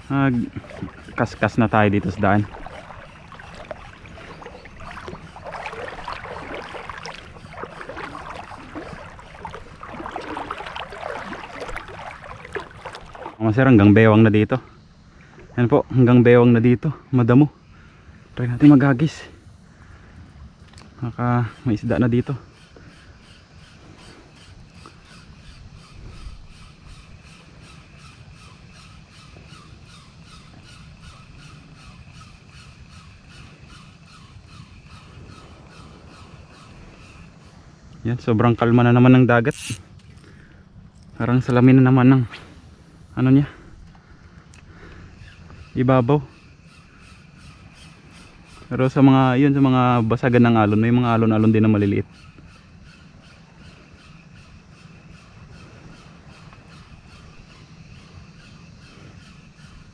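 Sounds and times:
person wading through seawater: 0.0 - 13.4
water: 0.0 - 59.9
fishing reel gears rasping: 39.4 - 40.3.

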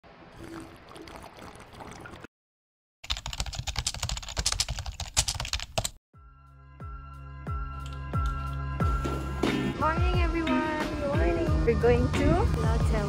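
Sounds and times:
slurping through a straw: 0.3 - 2.3
rapid keyboard typing: 3.0 - 6.0.

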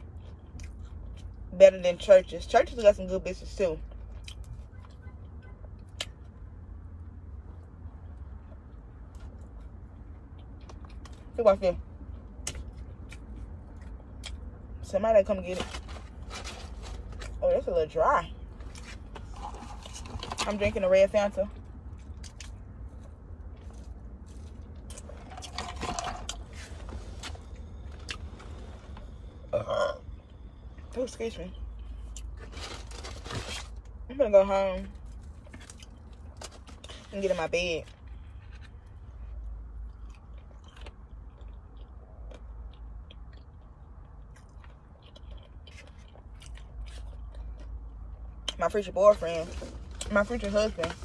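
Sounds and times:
person chewing food: 0.0 - 1.5, 7.4 - 11.3, 12.0 - 14.6, 21.6 - 29.2, 37.9 - 48.6
steady low hum: 0.0 - 51.0.

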